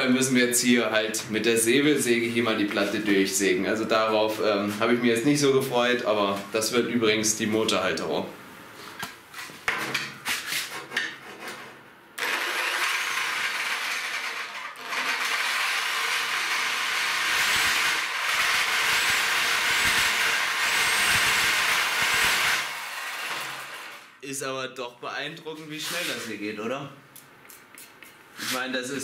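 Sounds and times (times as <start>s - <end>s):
reciprocating saw cutting steel: 12.2s - 24.2s.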